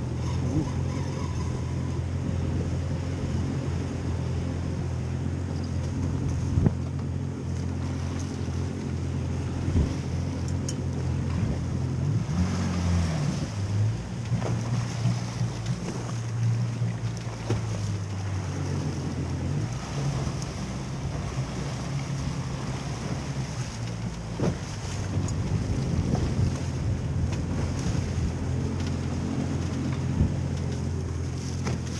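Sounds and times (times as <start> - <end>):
boat engine running: 0.0 - 31.9
water rushing along hull: 0.0 - 31.9
wind on microphone: 6.0 - 6.9, 9.4 - 10.2, 17.5 - 31.9.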